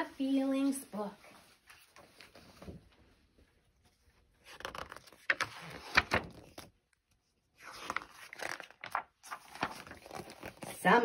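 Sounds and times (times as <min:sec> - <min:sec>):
book pages turning: 0:01.5 - 0:02.9, 0:03.6 - 0:11.0.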